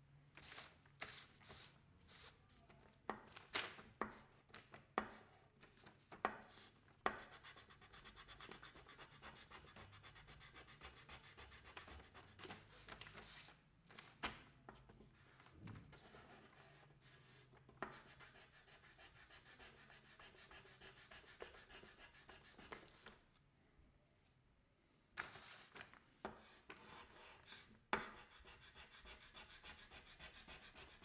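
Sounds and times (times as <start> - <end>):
pastel scratching on paper: 6.4 - 13.5, 16.0 - 23.2, 26.3 - 31.0.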